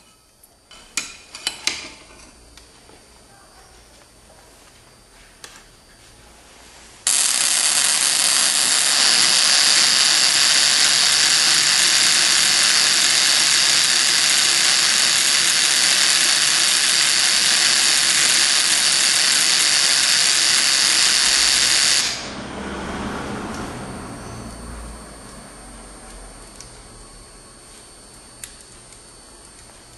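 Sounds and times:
high-voltage sparks crackling: 7.0 - 22.4
induction coil interrupter buzzing: 7.1 - 29.9.

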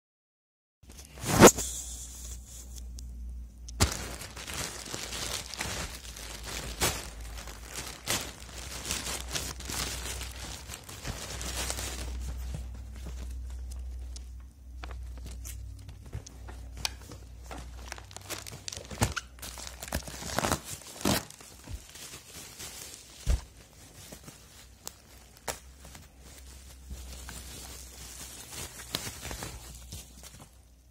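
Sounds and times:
plastic and bubble wrap crinkling: 3.7 - 30.9
plastic mailer tearing: 3.8 - 12.5, 17.6 - 30.6.

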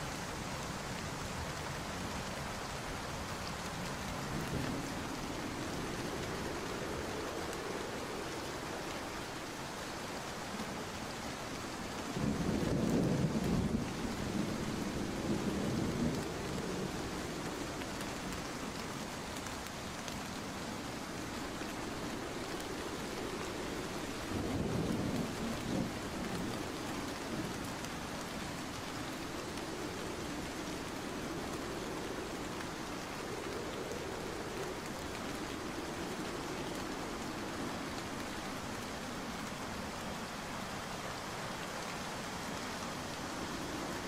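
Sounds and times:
heavy rain falling: 0.0 - 44.0
low rumbles of thunder: 12.1 - 17.6, 22.8 - 28.6.

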